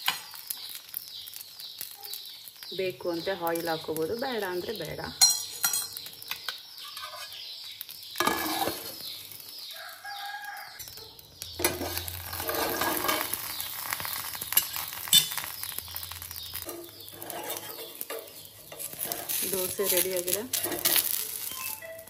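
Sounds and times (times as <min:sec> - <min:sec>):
birds chirping: 0:00.0 - 0:22.0
food sizzling on a griddle: 0:00.0 - 0:22.0
metal plate clinking: 0:05.2 - 0:06.0, 0:11.6 - 0:15.5, 0:16.1 - 0:22.0
rooster crowing: 0:09.7 - 0:11.2.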